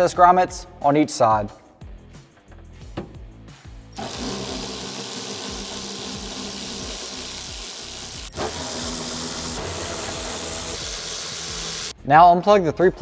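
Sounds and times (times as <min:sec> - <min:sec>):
power driver motor whir: 0:04.0 - 0:11.9.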